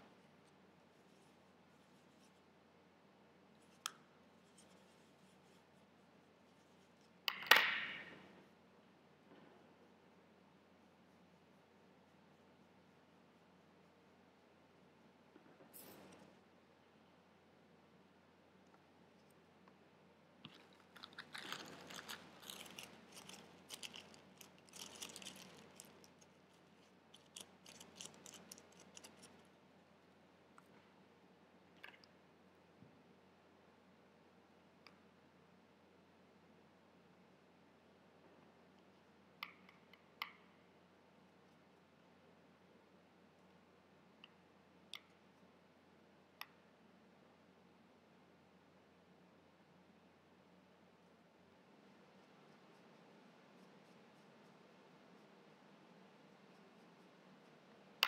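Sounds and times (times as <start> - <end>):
paintbrush scratching in palette: 0.1 - 2.6, 3.6 - 7.2, 20.5 - 29.6, 51.7 - 58.0
paper towel crinkling: 21.0 - 29.3.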